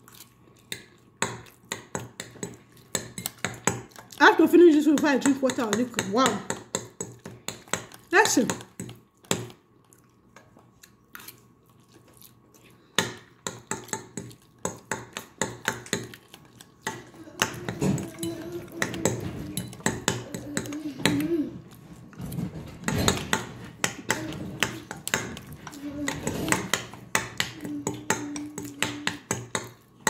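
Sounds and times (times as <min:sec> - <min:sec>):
close-up chewing: 0:00.0 - 0:01.7, 0:09.0 - 0:14.9, 0:16.0 - 0:28.8.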